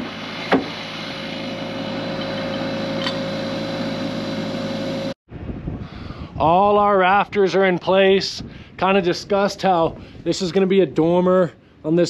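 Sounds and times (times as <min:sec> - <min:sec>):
engine hum: 0:00.0 - 0:05.2
sharp knock: 0:00.5 - 0:00.8.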